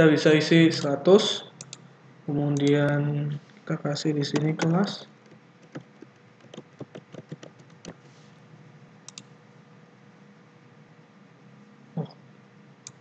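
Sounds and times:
faint room hum: 0:00.0 - 0:13.0
computer keyboard keystrokes: 0:04.4 - 0:08.0.

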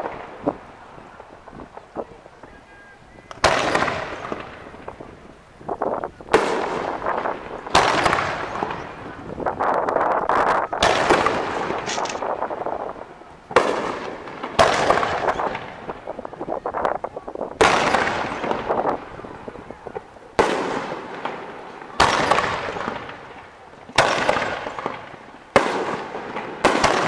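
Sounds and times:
firework shells bursting: 0:03.2 - 0:27.0.

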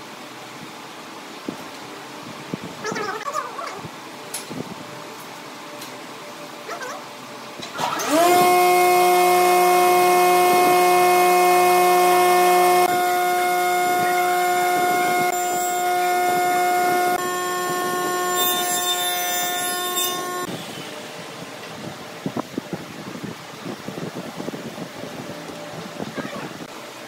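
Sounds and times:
power tool motor whining: 0:07.8 - 0:21.0.

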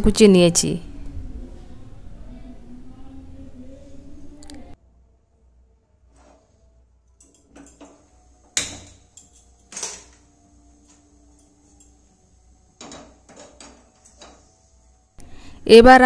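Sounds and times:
gas burner burning: 0:06.2 - 0:15.7
metal cookware knocks and clicks: 0:07.2 - 0:10.3, 0:12.8 - 0:14.5.

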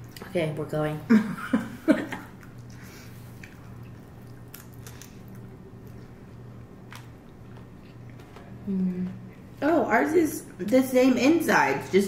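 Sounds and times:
steady low hum: 0:00.0 - 0:12.0
quiet chewing: 0:02.2 - 0:09.4.

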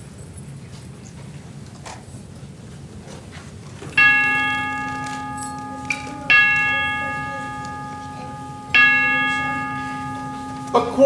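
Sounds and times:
clock bell chiming: 0:04.0 - 0:11.0.

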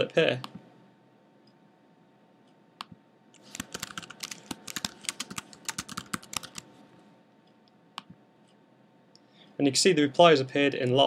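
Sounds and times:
typing on a computer keyboard: 0:03.4 - 0:06.7.

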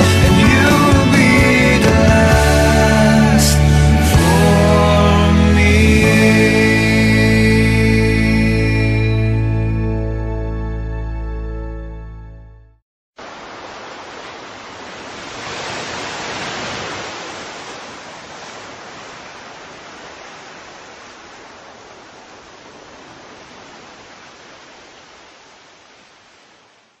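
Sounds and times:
music: 0:00.0 - 0:12.8.

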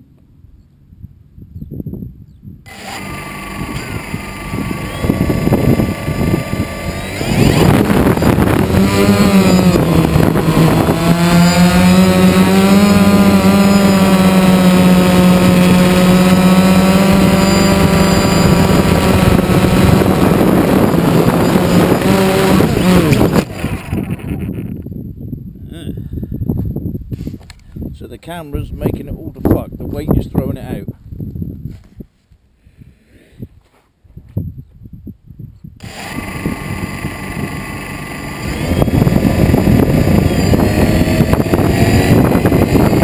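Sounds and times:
quadcopter motors buzzing: 0:02.6 - 0:24.9, 0:35.8 - 0:43.0.

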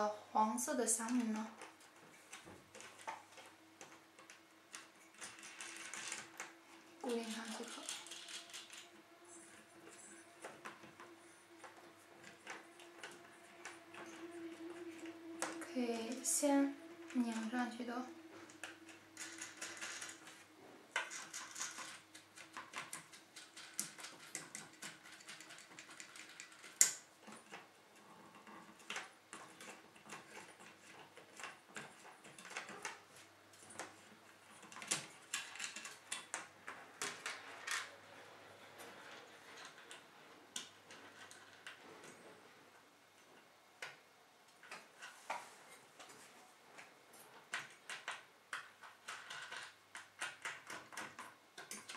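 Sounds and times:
small metal nuts clicking: 0:02.3 - 0:17.8, 0:18.4 - 0:37.9, 0:47.5 - 0:51.9.

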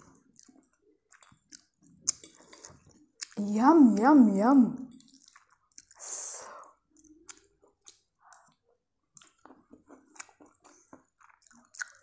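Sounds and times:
person chewing noodles: 0:00.0 - 0:03.4, 0:04.9 - 0:12.0.

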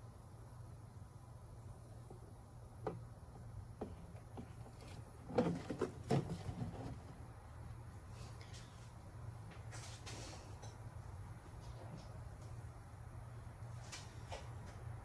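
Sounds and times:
plastic jug knocking: 0:05.2 - 0:07.0.

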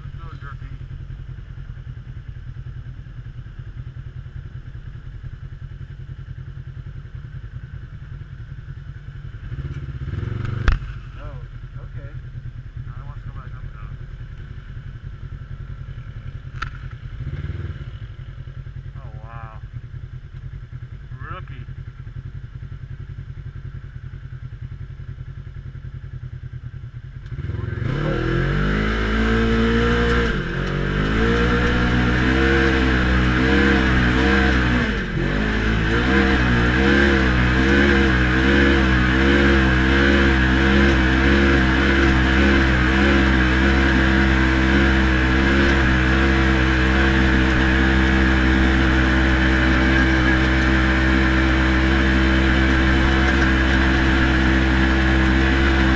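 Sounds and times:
utility vehicle engine revving: 0:09.2 - 0:12.1, 0:12.9 - 0:18.4, 0:27.2 - 0:55.9.

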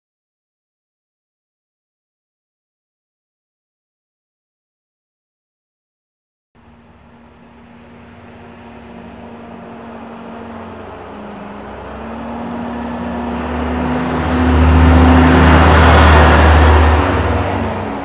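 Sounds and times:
truck diesel engine passing: 0:06.6 - 0:18.0.

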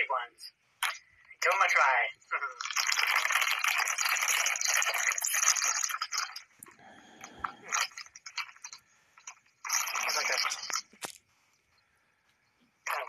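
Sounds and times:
foil snack bag crinkling: 0:02.6 - 0:06.4
snack crunching and chewing: 0:02.6 - 0:11.3.

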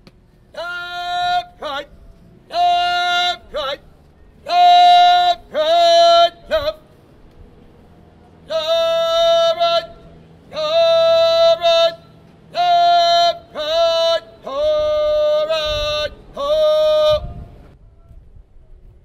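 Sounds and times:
person shouting drawn-out commands: 0:00.5 - 0:01.9, 0:02.5 - 0:06.8, 0:08.4 - 0:17.3.

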